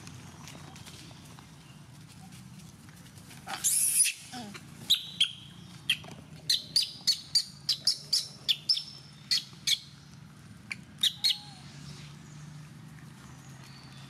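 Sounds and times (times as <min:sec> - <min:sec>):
high-pitched chirping calls: 0:04.9 - 0:09.9, 0:11.0 - 0:11.7.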